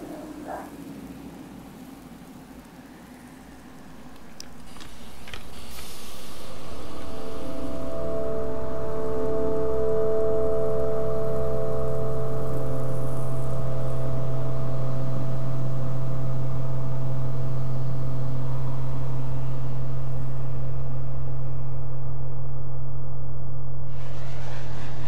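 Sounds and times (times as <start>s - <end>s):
faint hiss: 0.0s - 14.1s
deep low drone: 3.4s - 25.0s.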